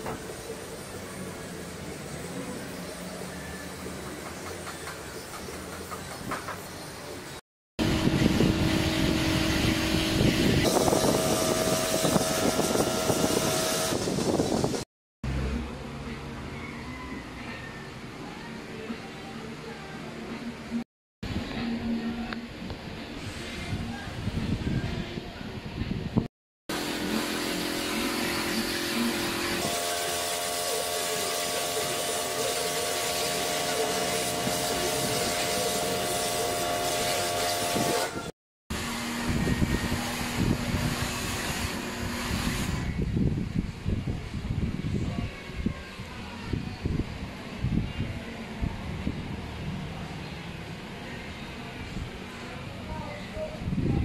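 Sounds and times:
motor hum: 7.8 - 14.8
pressure washer spraying water: 7.8 - 14.8, 26.7 - 38.3.

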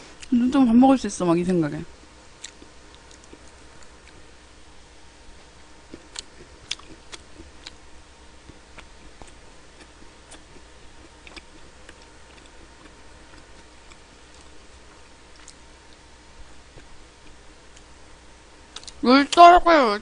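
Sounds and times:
low steady hum: 0.0 - 20.0
chewing: 2.4 - 4.2, 5.9 - 7.8, 8.4 - 16.0, 18.7 - 19.0.

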